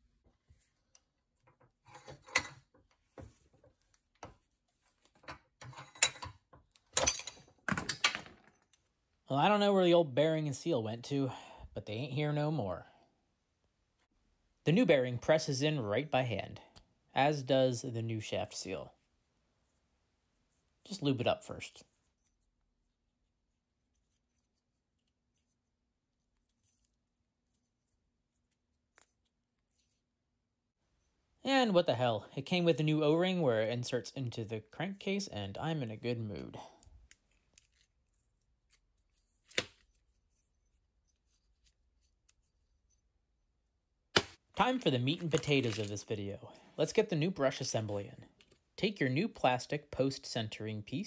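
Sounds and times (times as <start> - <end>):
metal clicks and knocks from vise: 1.5 - 3.0, 5.1 - 8.8.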